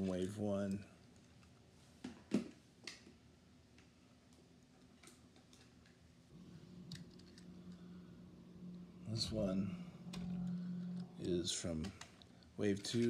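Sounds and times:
faint low hum: 6.3 - 13.0.

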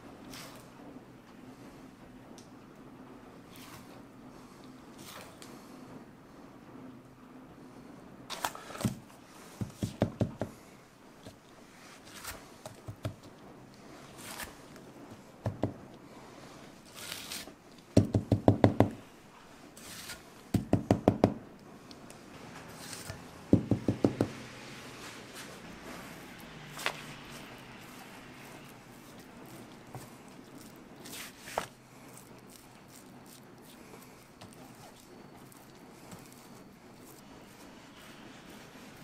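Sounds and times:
spatula knocking on hard edges: 9.6 - 10.6, 15.4 - 15.8, 18.0 - 19.0, 20.5 - 21.4, 23.5 - 24.4.

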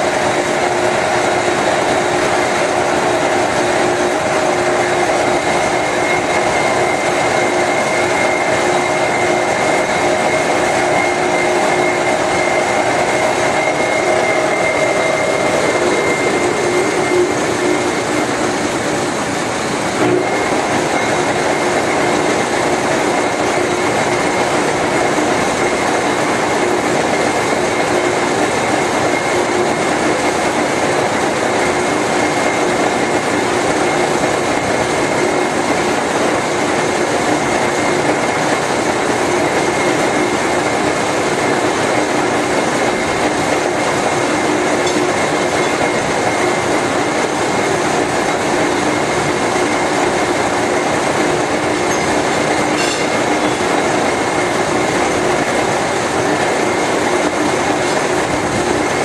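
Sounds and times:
high whine: 0.0 - 59.0
machine rumble and clatter: 0.0 - 59.0
low hum: 7.8 - 19.2.

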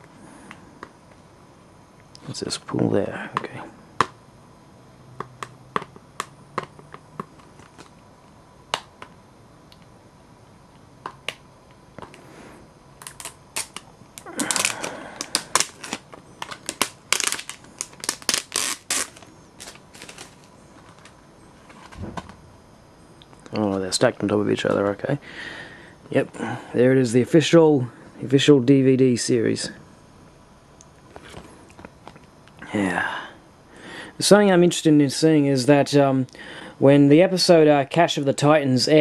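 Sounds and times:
plastic case clicking and crackling: 13.0 - 21.2.

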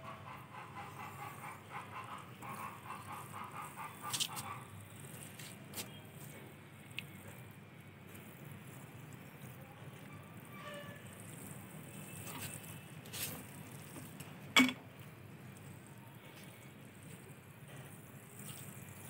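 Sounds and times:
water pattering on soil: 4.0 - 4.5, 12.2 - 14.4.

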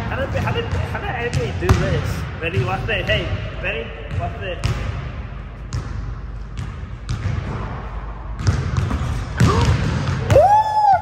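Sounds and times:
basketball bouncing on court: 0.1 - 11.0.

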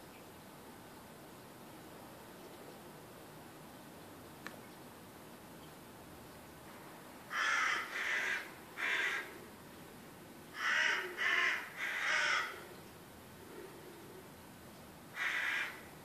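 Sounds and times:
crow cawing: 7.3 - 9.4, 10.6 - 12.6, 15.1 - 15.9.

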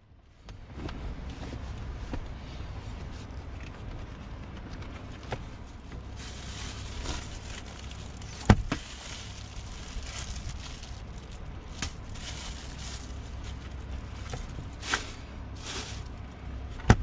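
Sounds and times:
steady low rumble: 0.0 - 17.0
plastic bags crinkling: 6.1 - 16.2.

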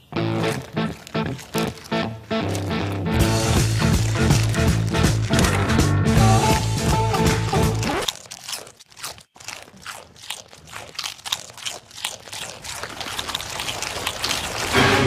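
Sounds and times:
goat crunching tortilla chips: 0.0 - 15.0
music: 2.1 - 7.9, 14.8 - 15.0.

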